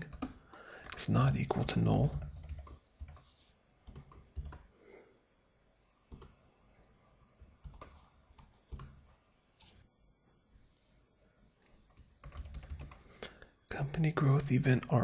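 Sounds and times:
computer keyboard typing: 0.0 - 4.7, 6.1 - 6.4, 7.4 - 9.2, 11.8 - 13.1.

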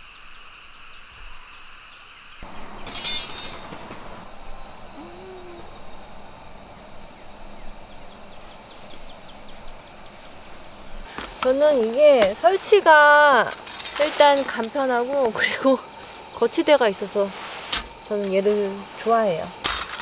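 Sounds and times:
insects chirping: 0.0 - 20.0
metal stand clattering on gravel: 2.4 - 4.3, 11.1 - 15.3, 19.6 - 20.0.

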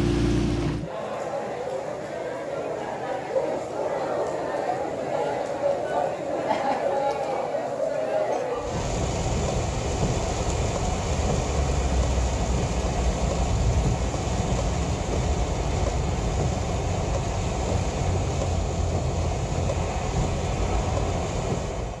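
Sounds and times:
car tyres rumbling on wet road: 0.0 - 0.9, 8.7 - 22.0
hiss of rain and spray: 8.6 - 22.0.

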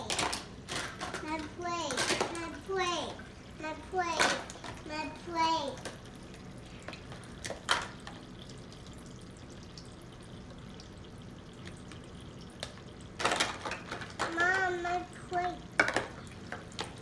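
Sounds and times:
plastic dishes clicking: 0.0 - 2.5, 13.2 - 14.6, 15.8 - 17.0
plastic dishes clattering: 0.0 - 2.7, 4.0 - 4.9, 7.0 - 8.2, 12.6 - 17.0
water trickling from toy faucet: 0.0 - 17.0.

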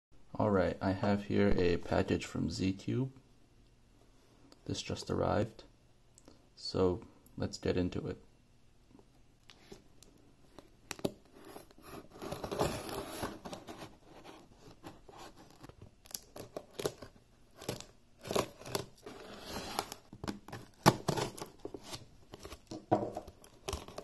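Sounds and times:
cardboard rustling: 10.9 - 24.0
tape scraping and tearing: 10.9 - 24.0
knife slitting packing tape: 16.1 - 22.6.

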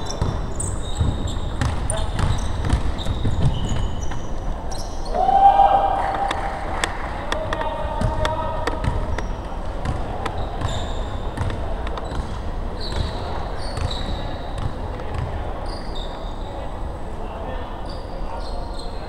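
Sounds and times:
sneakers squeaking on court: 0.0 - 5.2, 8.8 - 16.6
basketball bouncing on hardwood: 0.1 - 4.2, 8.0 - 10.8.

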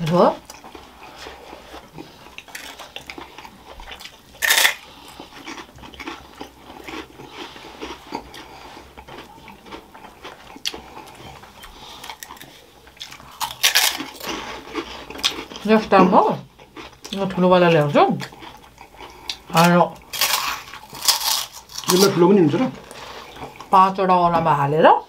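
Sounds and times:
chewing and crunching food: 0.0 - 23.9.

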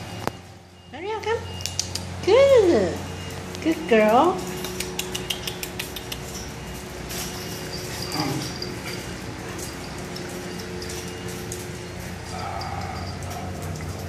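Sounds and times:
dog claws clicking on tiles: 4.6 - 6.5
dog whine: 7.5 - 11.1, 12.2 - 13.9.

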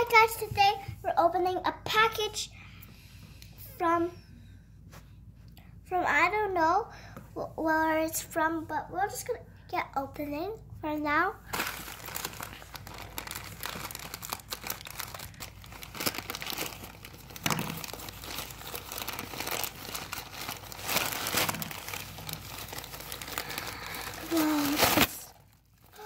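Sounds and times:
plastic bag crinkling: 11.5 - 26.0.

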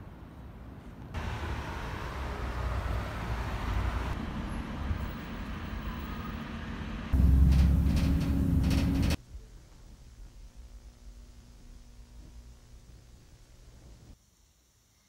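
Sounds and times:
distant road traffic hum: 0.0 - 9.2.

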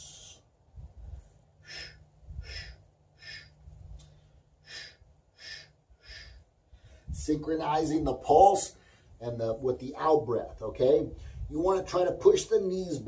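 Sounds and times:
man breathing out: 1.6 - 7.2.

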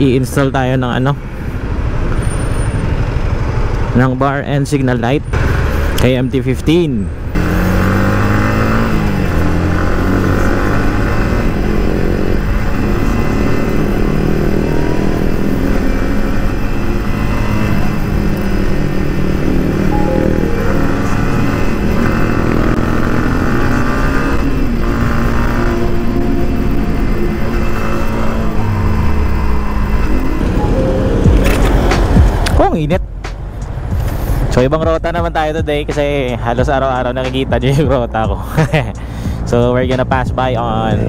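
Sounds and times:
motorcycle engine accelerating: 7.3 - 32.5.

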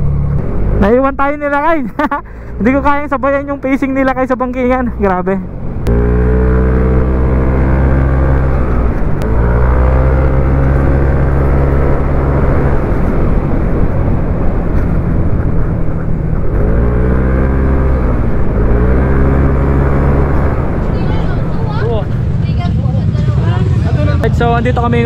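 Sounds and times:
scooter engine running: 5.9 - 24.0.

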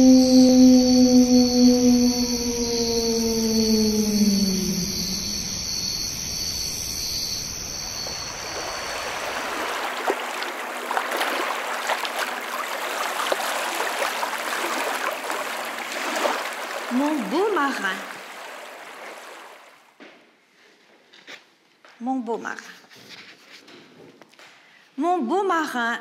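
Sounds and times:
electronic tone sliding down: 0.0 - 9.7
running water trickling: 4.5 - 19.9.

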